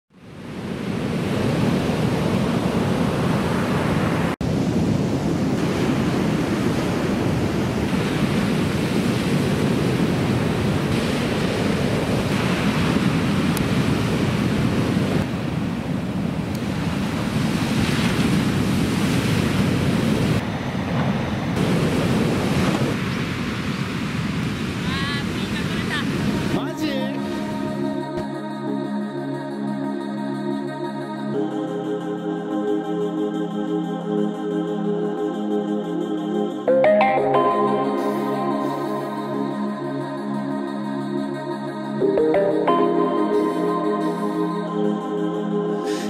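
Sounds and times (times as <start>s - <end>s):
ocean waves breaking: 0.2s - 28.5s, 36.1s - 46.0s.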